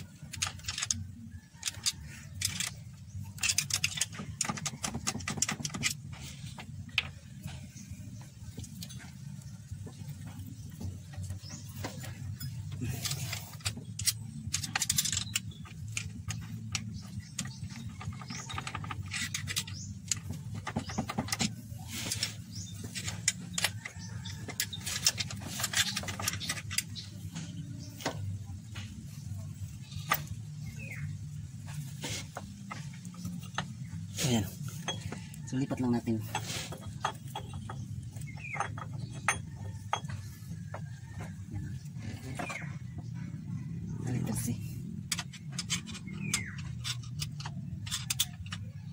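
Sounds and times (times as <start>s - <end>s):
metal tools clinking on gears: 0.0s - 28.4s, 29.6s - 43.1s, 44.0s - 48.9s.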